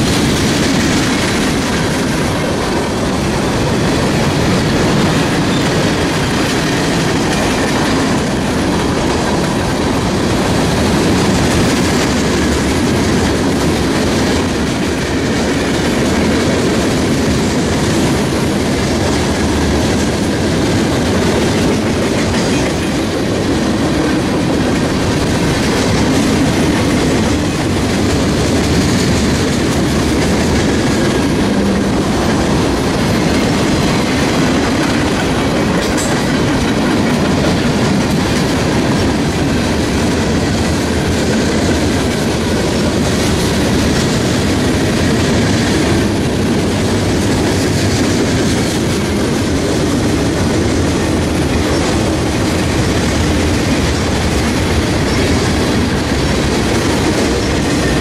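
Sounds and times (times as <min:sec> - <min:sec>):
freight train wheels rumbling: 0:00.0 - 0:58.0.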